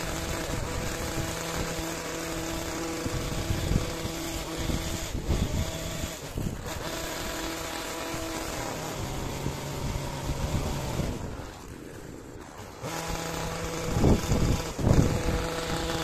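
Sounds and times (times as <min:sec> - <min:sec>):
hedge trimmer engine running: 0:00.0 - 0:16.0.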